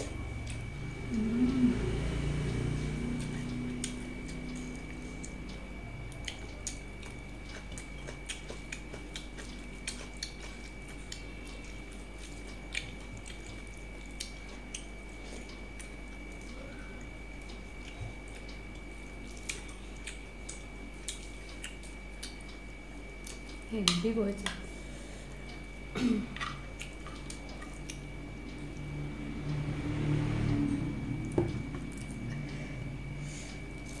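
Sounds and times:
chewing and lip smacks: 3.2s - 23.7s, 26.6s - 28.9s.

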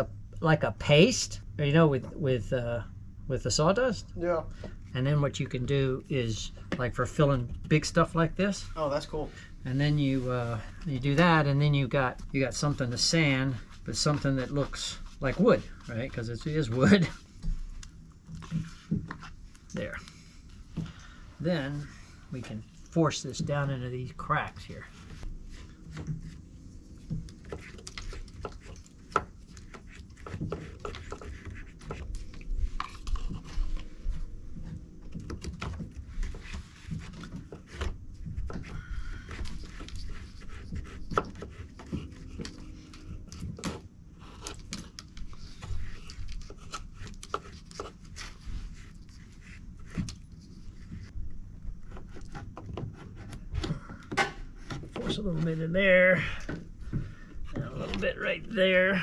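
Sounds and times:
putty knife scraping wood: 27.3s - 33.7s.

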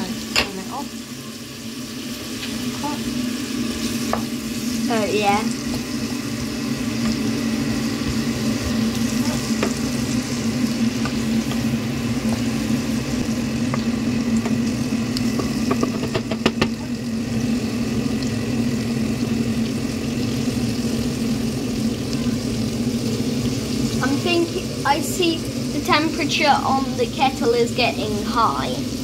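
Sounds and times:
bacon and carrots sizzling in a pan: 0.0s - 29.0s
steady low hum: 0.0s - 29.0s.

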